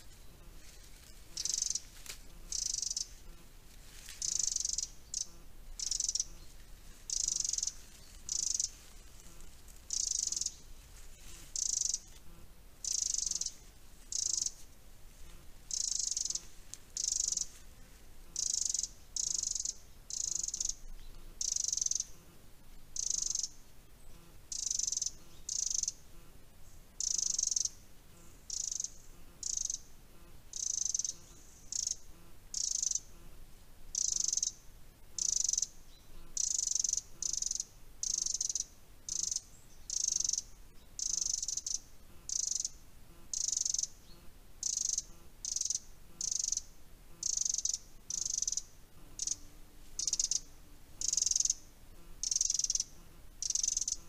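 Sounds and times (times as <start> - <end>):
cricket chirping: 0.0 - 17.6, 18.3 - 22.3, 23.0 - 23.7, 24.5 - 26.1, 26.9 - 29.9, 30.5 - 33.2, 33.9 - 54.0.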